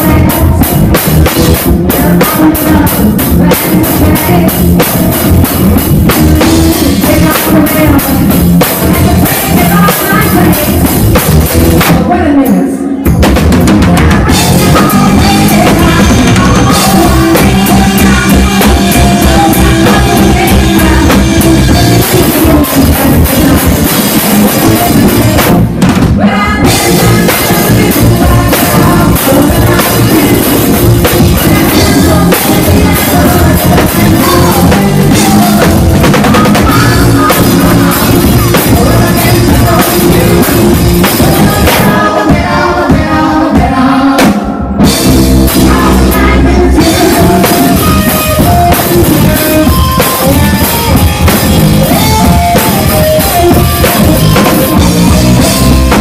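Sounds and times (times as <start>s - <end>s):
drum kit with rimshots: 0.0s - 56.0s
live rock band: 0.0s - 56.0s
person singing: 0.0s - 56.0s.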